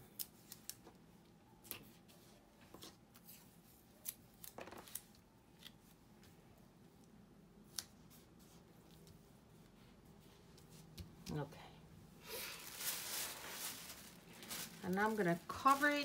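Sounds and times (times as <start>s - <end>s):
tape rustling: 12.3s - 16.0s.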